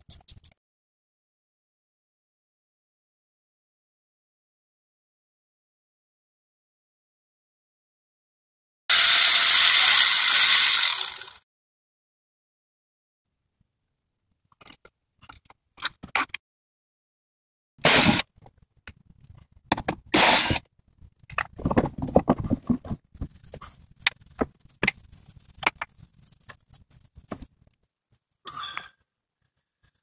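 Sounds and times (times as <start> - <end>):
cordless drill running: 8.9 - 11.4
plastic rattling: 21.2 - 27.7.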